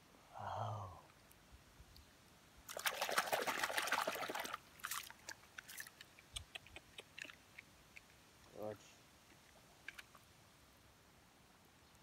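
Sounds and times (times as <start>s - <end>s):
muddy water splashing: 2.7s - 7.7s
water dripping: 2.7s - 8.6s.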